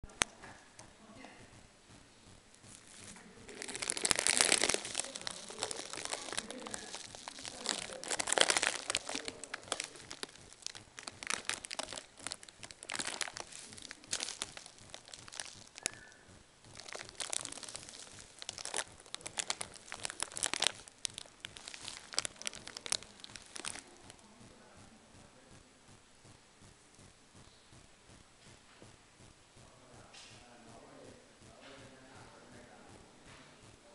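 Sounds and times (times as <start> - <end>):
plastic wrap crinkling: 2.5 - 24.3.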